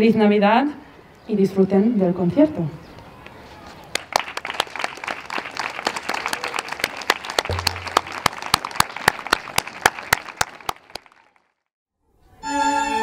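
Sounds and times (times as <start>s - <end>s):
audience applauding: 3.9s - 11.6s.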